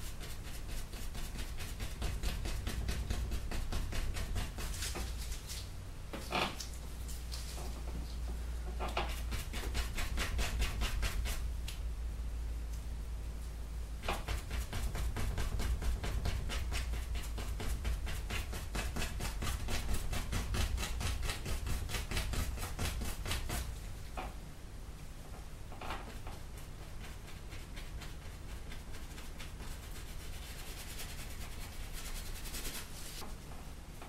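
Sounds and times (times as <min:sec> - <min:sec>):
paintbrush scrubbing on canvas: 0:00.0 - 0:05.7, 0:09.0 - 0:11.5, 0:26.3 - 0:33.2.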